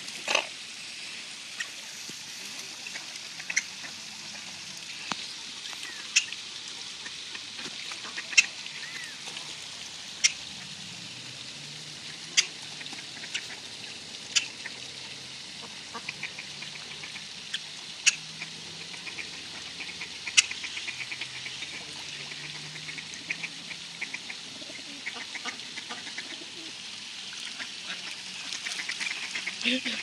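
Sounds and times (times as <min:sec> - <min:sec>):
steady hiss: 0:00.0 - 0:30.0
waterfowl calls: 0:02.8 - 0:04.5, 0:05.7 - 0:06.4, 0:07.9 - 0:09.2, 0:10.2 - 0:10.7, 0:12.2 - 0:14.8, 0:15.6 - 0:26.7, 0:27.4 - 0:30.0.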